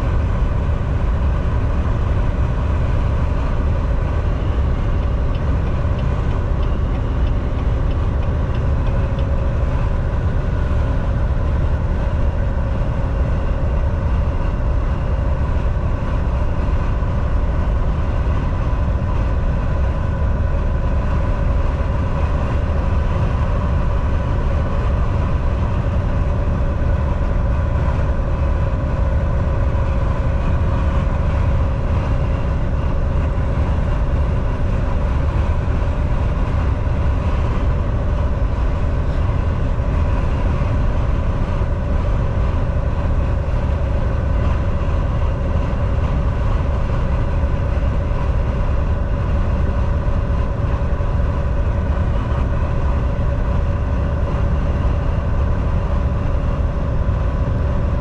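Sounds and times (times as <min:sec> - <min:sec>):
constant whine: 0:00.0 - 0:58.0
truck engine and road rumble: 0:00.0 - 0:58.0.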